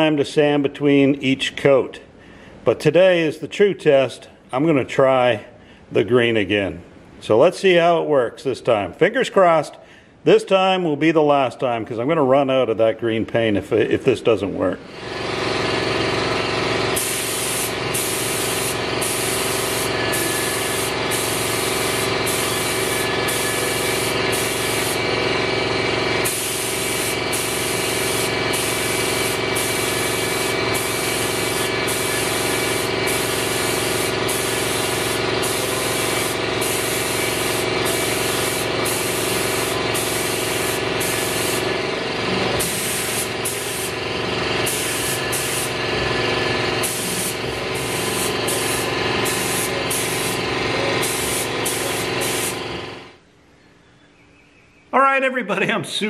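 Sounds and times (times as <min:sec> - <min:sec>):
paint spray gun hissing: 0:14.9 - 0:53.1
steady machine hum: 0:14.9 - 0:53.2.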